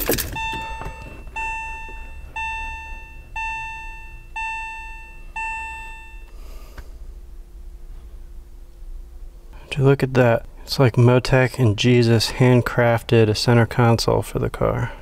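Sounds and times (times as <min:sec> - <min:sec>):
car warning chime: 0:00.0 - 0:06.4.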